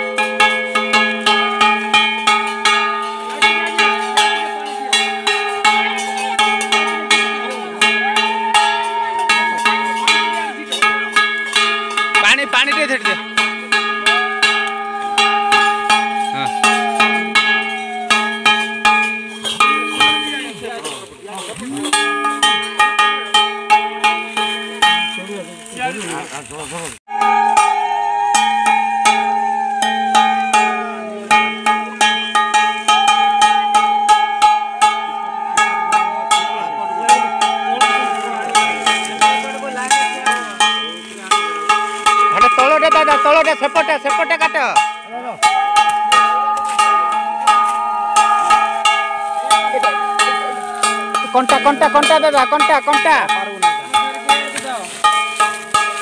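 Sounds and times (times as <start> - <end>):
steady held tones: 0.0 - 26.1, 27.0 - 56.0
sliding melody line: 0.0 - 26.3, 27.0 - 56.0
ringing metal percussion: 0.0 - 26.4, 27.0 - 56.0
long falling note: 27.1 - 31.8.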